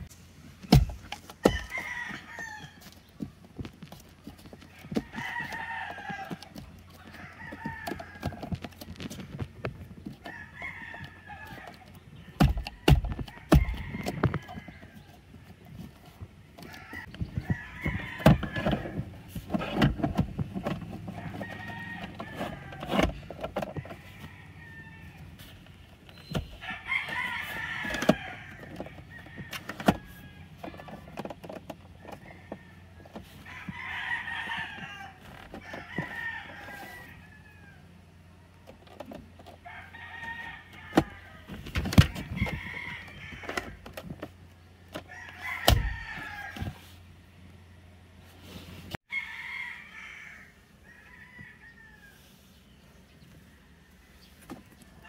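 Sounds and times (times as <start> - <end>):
plastic armrest clicks and knocks: 27.8 - 32.2.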